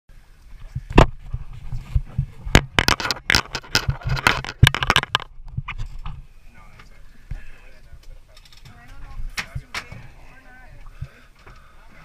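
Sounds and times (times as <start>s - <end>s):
camera handling knocks and scrapes: 0.9s - 6.2s.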